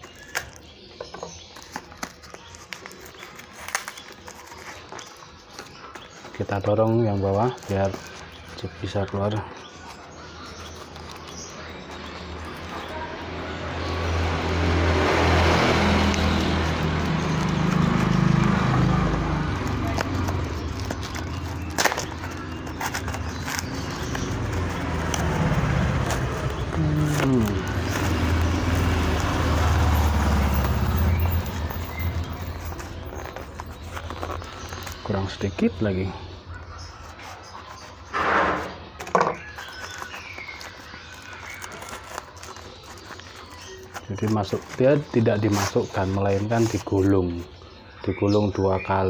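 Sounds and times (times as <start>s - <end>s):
cardboard and tape crackling: 0.0s - 48.0s
street traffic hum: 0.0s - 49.0s
cardboard packaging pulled open: 16.3s - 35.1s.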